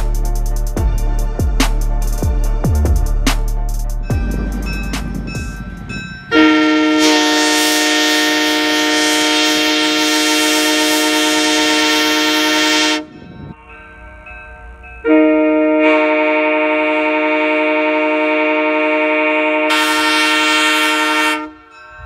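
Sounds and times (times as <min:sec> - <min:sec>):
three-chime train horn: 0:04.2 - 0:14.0, 0:14.8 - 0:22.0.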